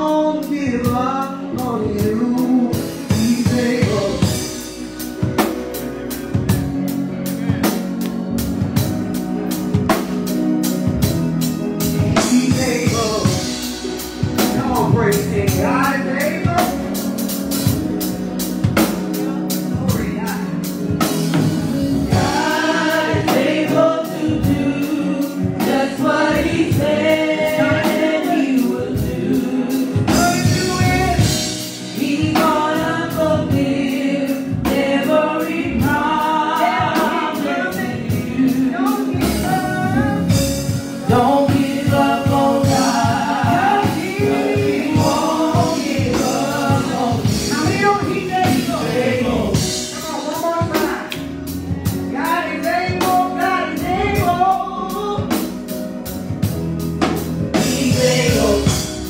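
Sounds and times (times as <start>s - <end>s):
accompaniment with steady beat: 0.0s - 59.0s
choir singing gospel: 0.0s - 59.0s.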